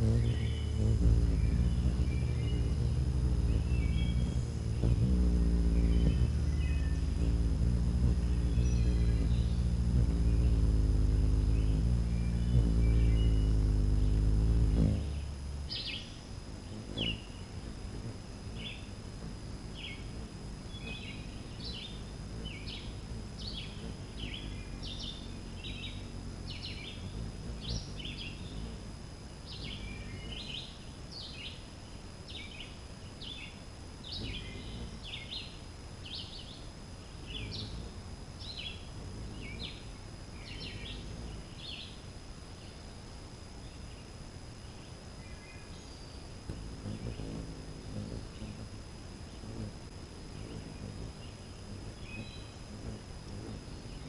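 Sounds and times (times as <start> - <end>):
birds chirping: 0.0 - 28.9, 29.5 - 31.6
low outdoor rumble: 0.0 - 30.6.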